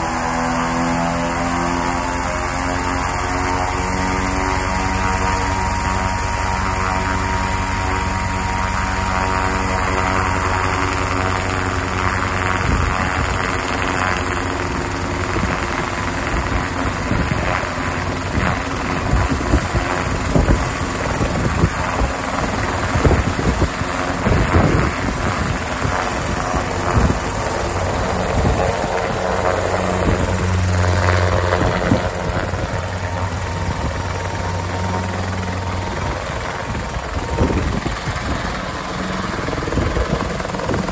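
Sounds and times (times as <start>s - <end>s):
electric motor whine: 0.0s - 40.9s
low thumps and rushing air: 15.2s - 40.9s.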